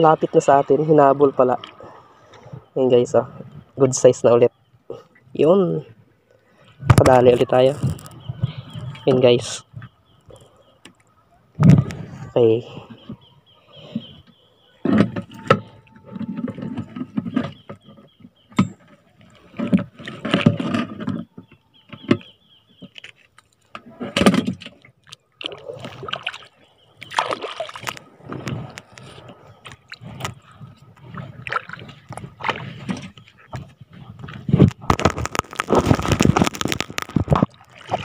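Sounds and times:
sea water splashing: 25.0s - 29.2s, 35.3s - 38.0s.

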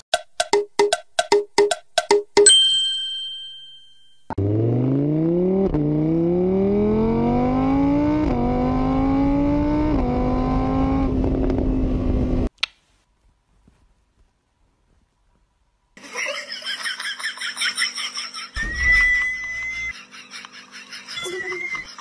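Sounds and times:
vehicle engine accelerating: 4.4s - 12.5s.

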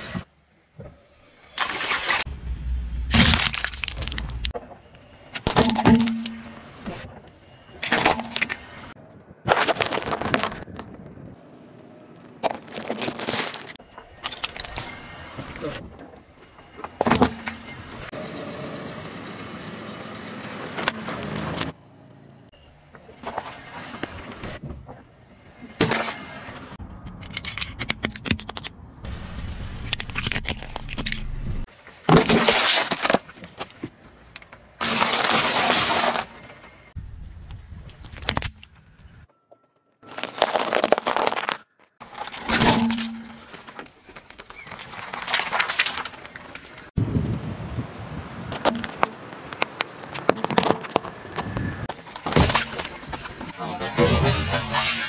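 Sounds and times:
objects crunching under car tyre: 1.5s - 11.4s, 12.1s - 17.8s, 29.8s - 37.0s, 40.0s - 47.4s, 48.1s - 55.0s
tyre crunching objects: 3.0s - 4.6s, 9.4s - 11.1s, 12.1s - 14.9s, 40.0s - 46.9s, 48.4s - 53.6s
car running: 17.6s - 25.6s.

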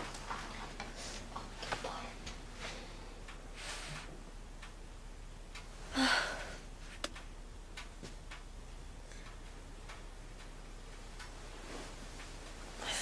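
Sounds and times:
clock ticking: 0.0s - 13.0s
woman sighing: 5.9s - 6.6s.

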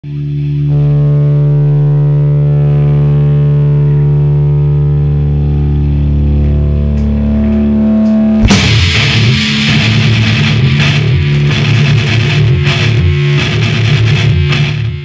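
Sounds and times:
distorted electric guitar droning: 0.0s - 15.0s
metal band playing: 6.7s - 15.0s.

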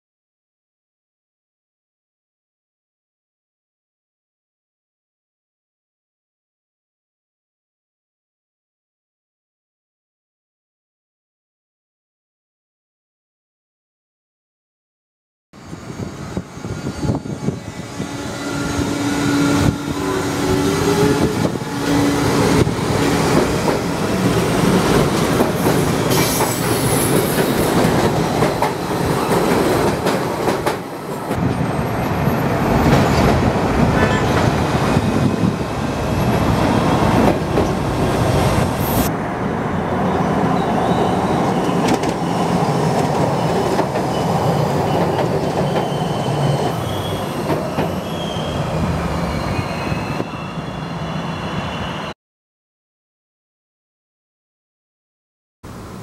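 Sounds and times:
train wheels on track: 15.7s - 52.1s
rail clicks: 19.6s - 35.6s, 36.2s - 38.8s, 41.2s - 46.7s, 47.4s - 48.0s.

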